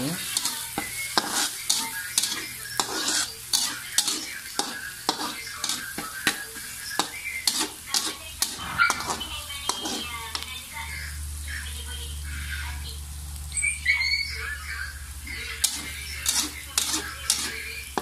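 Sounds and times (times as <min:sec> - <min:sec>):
garlic sizzling in hot oil: 0:00.0 - 0:11.6, 0:12.2 - 0:18.0
metal spatula scraping a wok: 0:00.2 - 0:10.4, 0:15.2 - 0:18.0.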